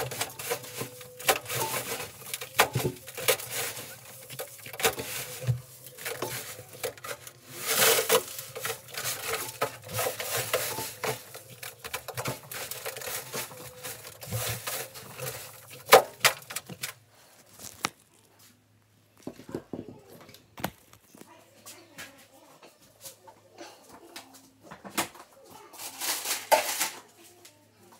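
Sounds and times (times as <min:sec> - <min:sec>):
lint being scraped and peeled: 0:00.0 - 0:18.3.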